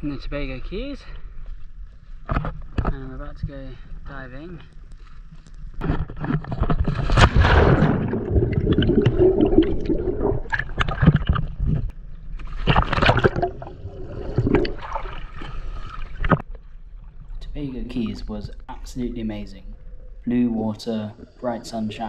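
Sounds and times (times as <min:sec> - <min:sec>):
sea water splashing and sloshing: 0:05.8 - 0:18.1
bubbles crackling: 0:06.4 - 0:16.5.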